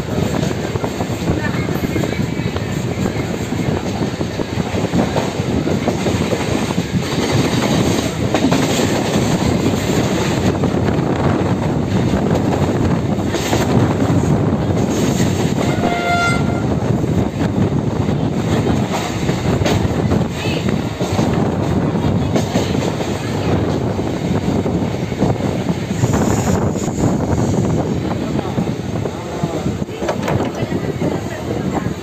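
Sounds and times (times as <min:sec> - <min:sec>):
train wheels rumbling on track: 0:00.0 - 0:32.0
train horn: 0:15.6 - 0:16.9.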